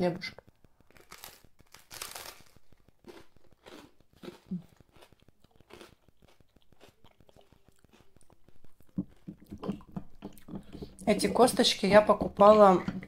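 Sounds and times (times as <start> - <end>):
chewing crunchy toast: 0.4 - 11.1
mouth sounds: 3.3 - 13.0.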